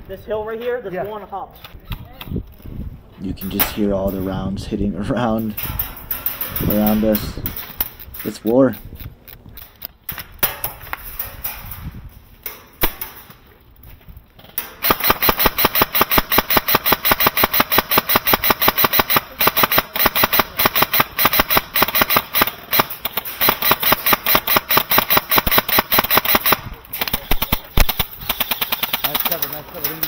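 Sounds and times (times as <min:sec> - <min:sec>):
airsoft gun shots: 0:14.7 - 0:29.4.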